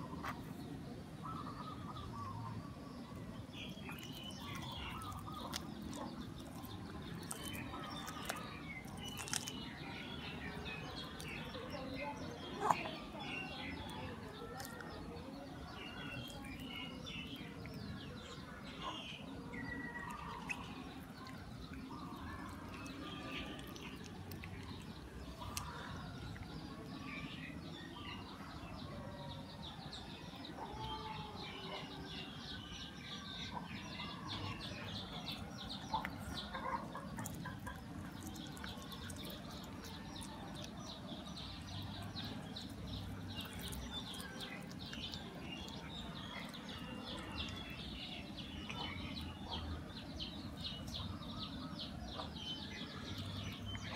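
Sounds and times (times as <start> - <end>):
small birds chirping: 0.0 - 53.9
chickens clucking: 35.7 - 40.6.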